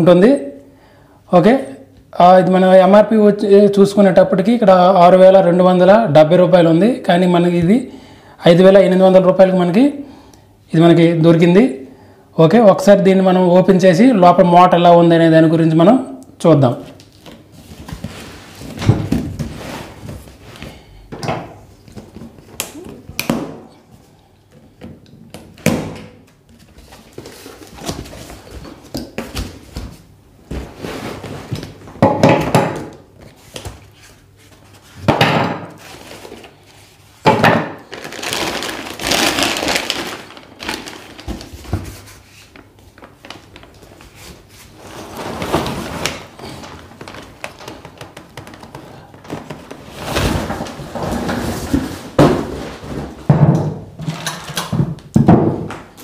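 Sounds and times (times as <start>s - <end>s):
cardboard and plastic rustling: 16.9s - 20.9s, 26.5s - 31.8s, 35.8s - 37.0s, 37.8s - 53.4s
cardboard flaps thunking: 18.7s - 20.3s, 47.0s - 53.8s.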